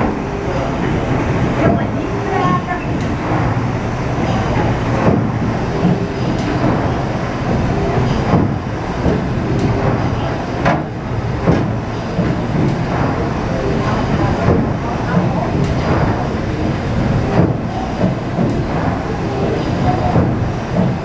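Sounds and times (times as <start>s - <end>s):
paddle wheel churning water: 0.0s - 21.0s
sharp knocks: 10.6s - 13.2s.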